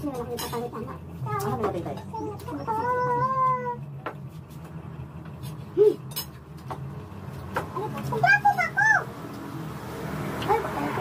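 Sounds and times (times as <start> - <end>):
dishes and cutlery clinking: 0.0 - 2.7, 5.4 - 7.7.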